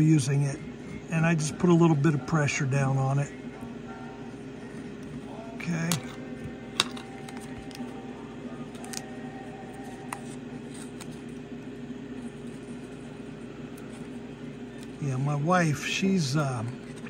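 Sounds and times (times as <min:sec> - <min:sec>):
steady hum: 0:00.0 - 0:17.0
light paper sounds: 0:09.8 - 0:11.4.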